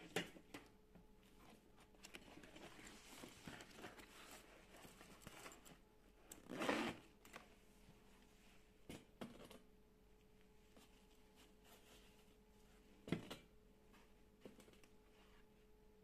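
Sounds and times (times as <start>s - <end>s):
zipper clicks: 6.3s - 7.4s.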